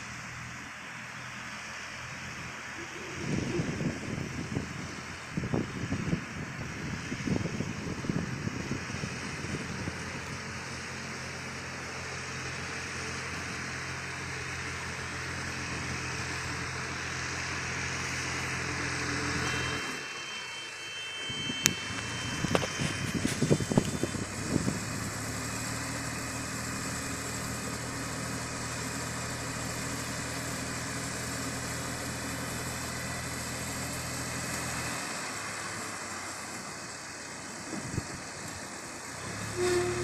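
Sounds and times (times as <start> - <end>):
tractor engine running: 0.0 - 40.0.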